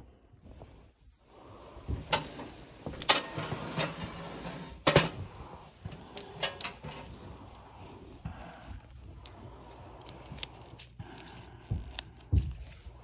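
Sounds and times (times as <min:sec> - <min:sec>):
ceiling tile scraping: 0:01.8 - 0:08.8.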